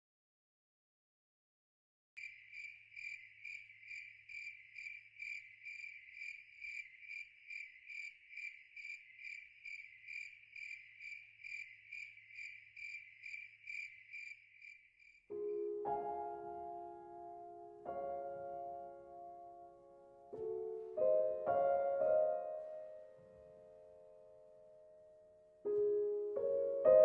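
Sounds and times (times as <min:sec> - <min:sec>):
cricket chirping: 0:02.2 - 0:15.3
piano music: 0:15.3 - 0:27.0.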